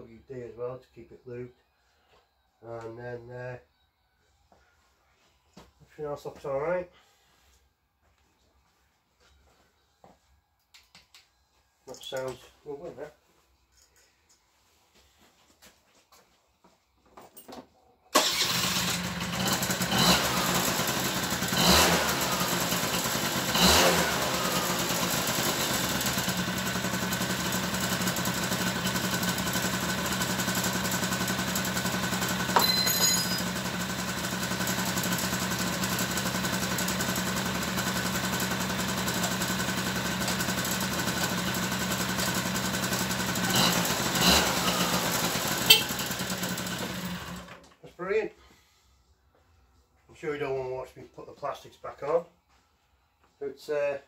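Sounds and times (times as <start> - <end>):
scooter engine starting and idling: 18.1 - 47.7
scooter throttle blips: 43.5 - 46.4.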